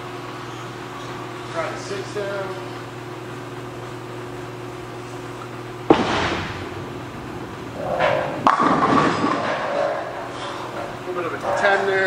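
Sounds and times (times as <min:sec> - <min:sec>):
machine hum: 0:00.0 - 0:12.0
bowling ball crashing into pins: 0:05.9 - 0:10.4.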